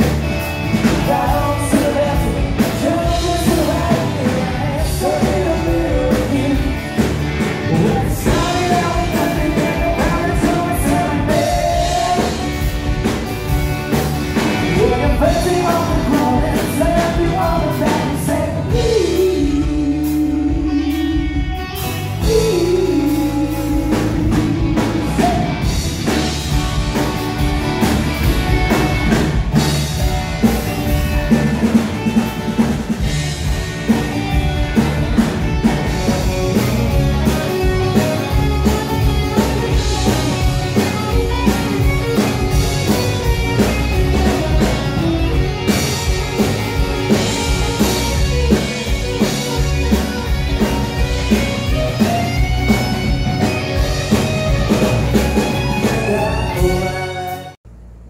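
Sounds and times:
electric guitars: 0.0s - 57.6s
bass guitar: 0.0s - 58.0s
drum kit: 0.0s - 58.0s
man singing: 0.8s - 12.7s, 14.6s - 25.8s, 55.4s - 57.6s.

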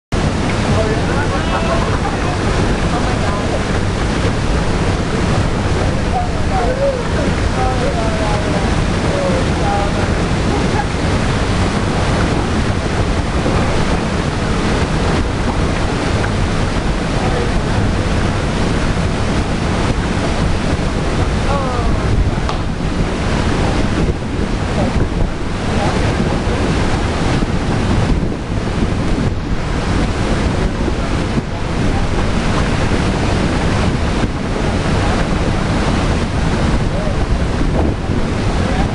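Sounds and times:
wind buffeting microphone: 0.1s - 38.9s.

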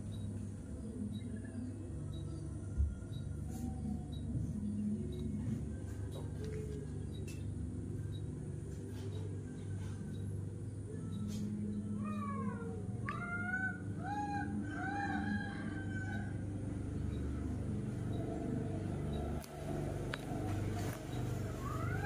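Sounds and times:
animal calling: 11.9s - 15.5s.

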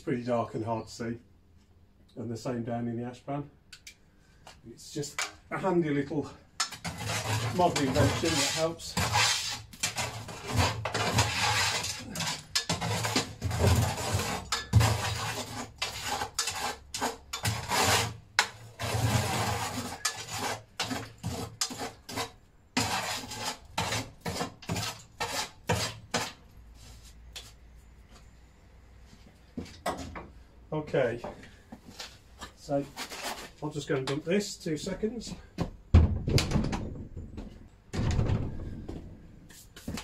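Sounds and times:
shovel scraping metal ash pan: 6.6s - 26.4s.

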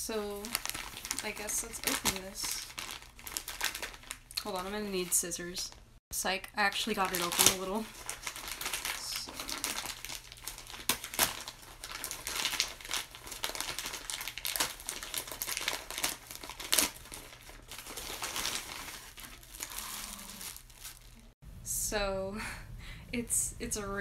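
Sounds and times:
plastic bag crinkling: 0.3s - 4.8s, 6.8s - 21.4s.

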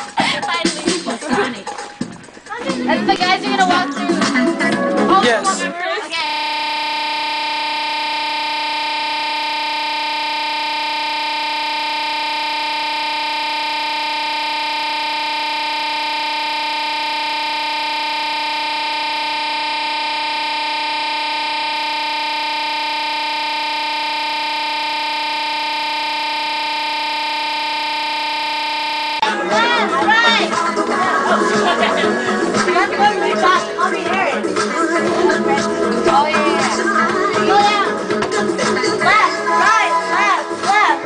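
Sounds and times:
steady electronic buzz: 6.1s - 29.5s.

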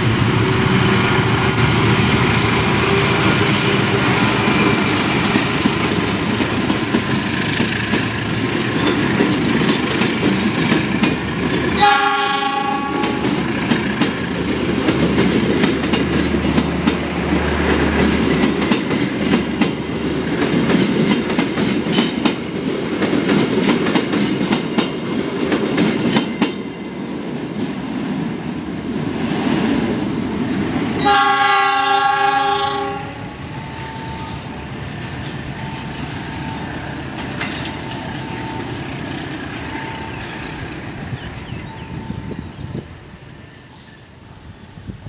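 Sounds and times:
train rolling past: 0.0s - 45.0s
wheels clattering over rail joints: 0.9s - 12.0s, 12.6s - 27.8s, 35.0s - 40.4s
locomotive horn: 2.4s - 5.0s, 11.8s - 13.4s, 31.0s - 34.4s.

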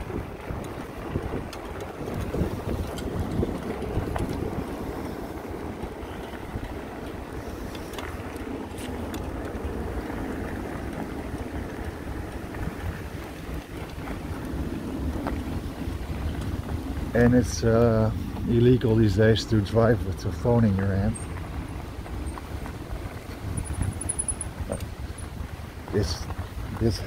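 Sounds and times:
wind on microphone: 0.0s - 20.5s, 21.6s - 27.0s
fat tyres rolling over gravel: 0.0s - 27.0s.

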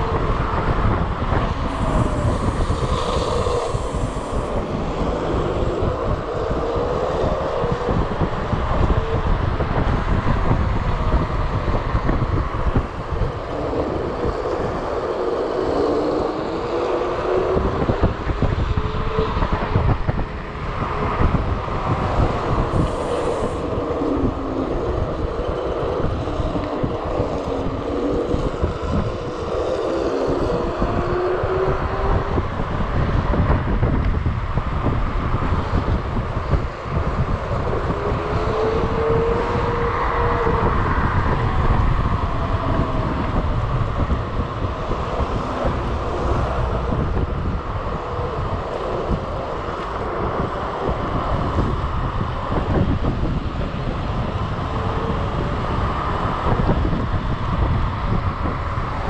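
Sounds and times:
low rumble: 0.0s - 59.0s
wind rushing over microphone: 0.0s - 59.0s.

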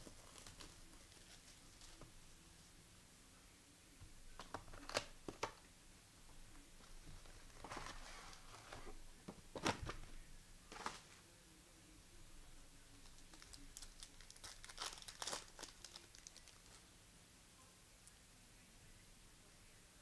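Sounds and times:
foil wrappers crinkling and tearing: 0.0s - 2.0s, 13.0s - 16.8s.

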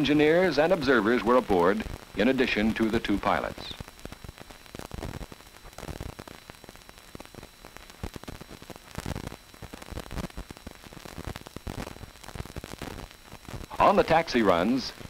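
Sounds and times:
faint hum: 0.0s - 15.0s
film soundtrack hiss and crackle: 0.0s - 15.0s.

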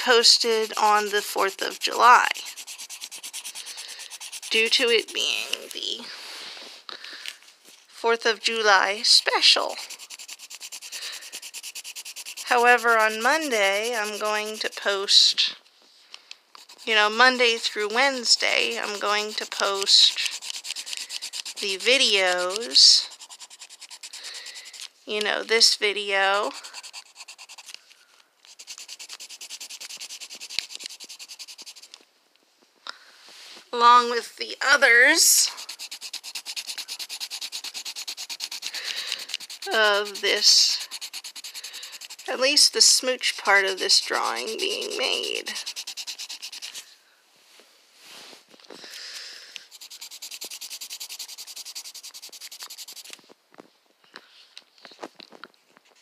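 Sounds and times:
pencil scratching on paper: 0.0s - 6.0s, 8.2s - 15.4s, 16.6s - 24.9s, 25.5s - 27.8s, 28.5s - 31.9s, 34.6s - 46.9s, 49.6s - 53.2s.

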